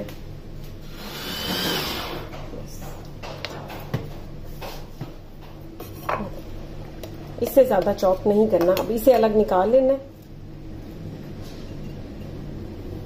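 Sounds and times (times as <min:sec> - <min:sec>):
manual food chopper whirring: 0:00.9 - 0:02.3.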